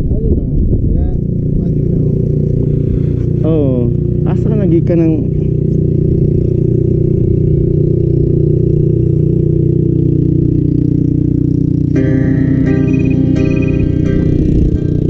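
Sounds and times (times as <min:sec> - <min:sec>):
motorcycle engine running: 0:00.0 - 0:15.0
road and wind noise: 0:00.0 - 0:15.0
music: 0:12.0 - 0:15.0.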